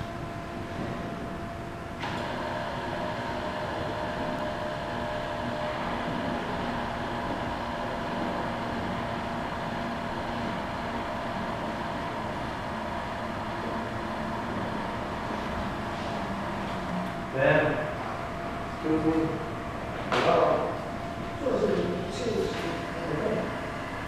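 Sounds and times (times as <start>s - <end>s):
mechanical hum with faint whine: 0.0s - 24.0s
small motor running: 2.1s - 17.8s.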